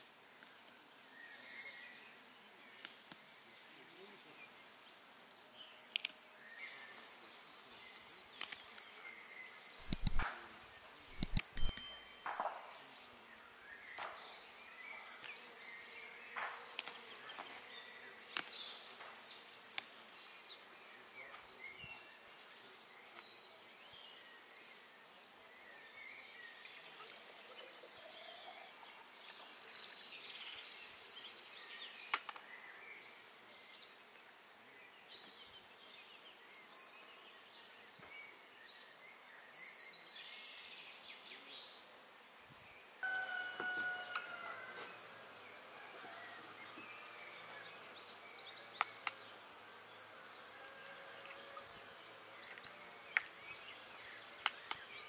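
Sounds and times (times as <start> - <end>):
sharp taps: 9.8 - 10.3.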